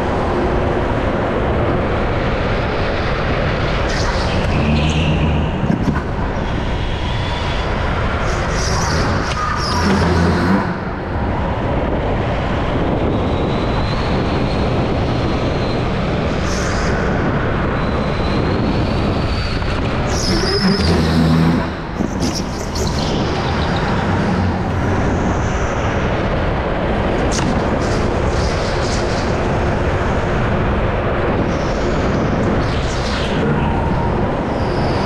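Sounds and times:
go-kart engine: 8.6 - 11.3, 19.6 - 26.0.

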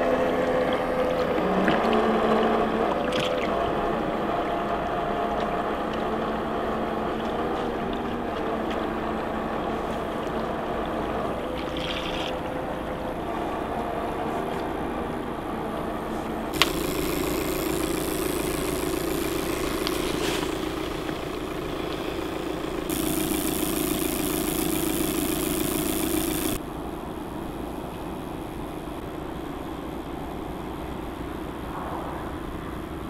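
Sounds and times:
electric motor whine: 16.6 - 26.6.

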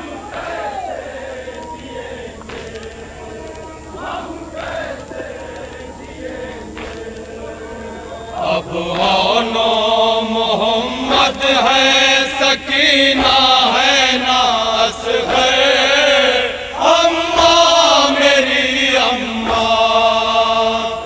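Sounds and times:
men chanting a lament: 0.0 - 21.0
hands slapping chests: 2.4 - 2.9, 6.8 - 7.3.

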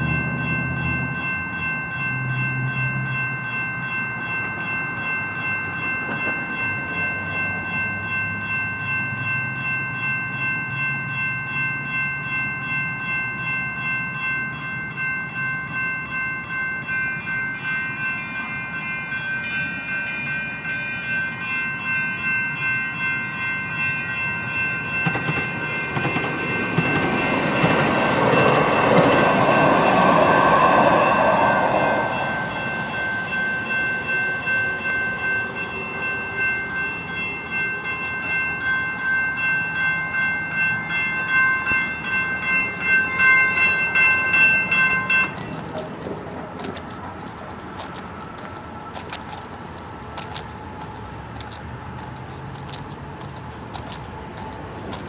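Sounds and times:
railroad crossing bells dinging: 0.0 - 55.0
train rushing past: 23.7 - 55.0.

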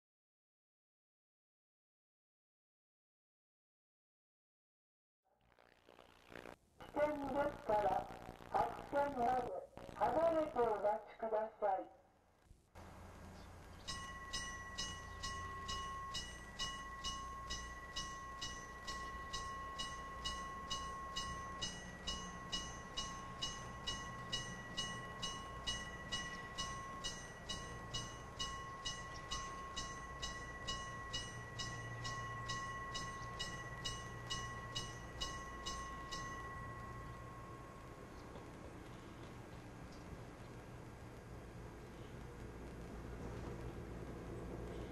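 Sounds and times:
railway warning bell ringing: 12.8 - 38.2
diesel railcar rumbling: 12.8 - 44.9.

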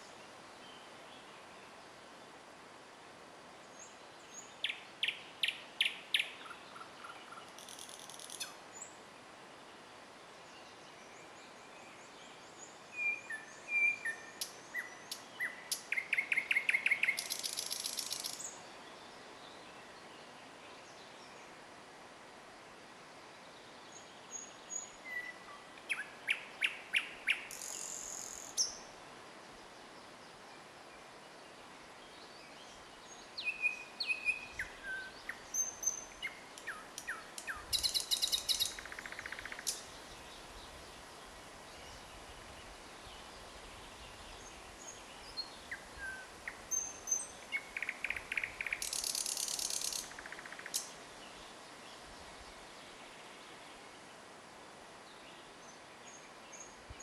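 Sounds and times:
nightingale singing: 3.8 - 9.0, 11.0 - 20.4, 23.9 - 28.9, 32.2 - 40.8, 41.7 - 51.6.

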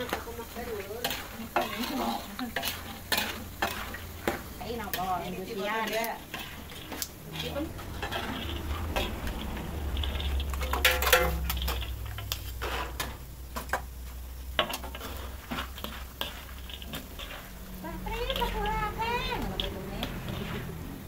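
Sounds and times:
utensils clinking against pots: 0.0 - 13.9, 14.5 - 21.0
low hum: 7.2 - 21.0.

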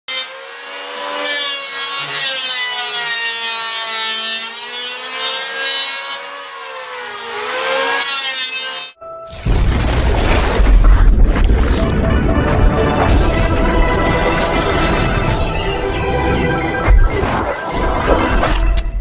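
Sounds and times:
electric planer whining on wood: 0.1 - 9.0.

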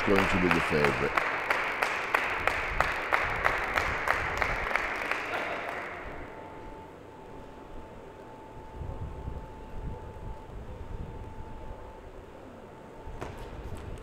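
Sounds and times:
crowd applauding: 0.0 - 6.3.

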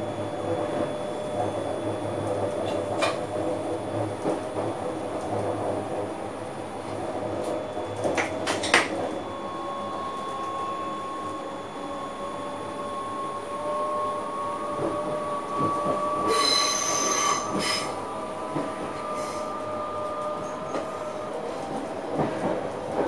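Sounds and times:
train rumble: 0.0 - 23.0
thin squealing tone: 16.0 - 18.0.

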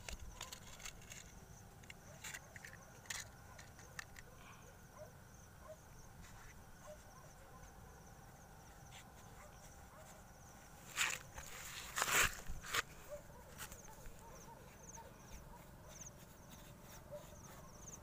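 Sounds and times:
night insects chirring: 0.0 - 18.0
hand rustling cloth: 8.7 - 18.0.

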